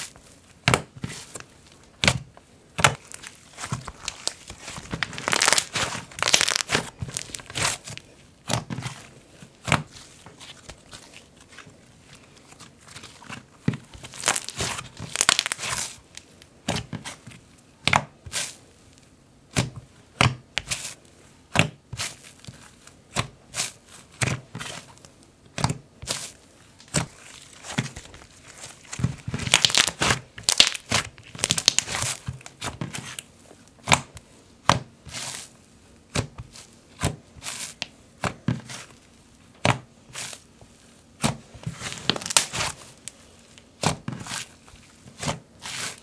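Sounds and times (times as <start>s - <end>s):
slime crackling and tearing: 2.8s - 8.0s, 13.9s - 16.3s, 26.8s - 33.2s, 41.8s - 43.1s
slime popping: 3.9s - 7.8s, 14.0s - 15.8s, 29.0s - 32.2s, 42.0s - 42.7s.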